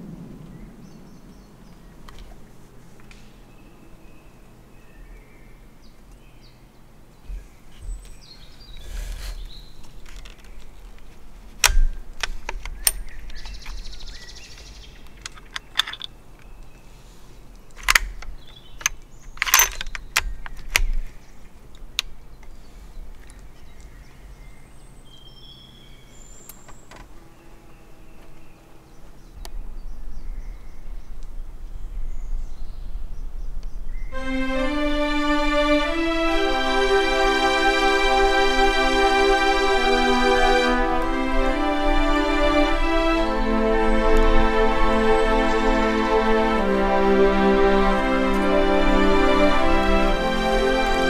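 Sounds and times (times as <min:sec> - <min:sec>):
low rumble: 0:00.0 - 0:03.6
bird chirps: 0:00.0 - 0:11.2, 0:12.6 - 0:34.2
sharp clicks and knocks: 0:09.8 - 0:13.8.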